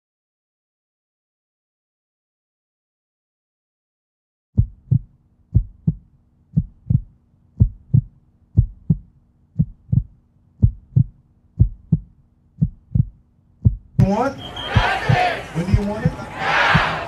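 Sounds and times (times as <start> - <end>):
heartbeat double thump: 4.6 - 14.1, 14.7 - 17.0.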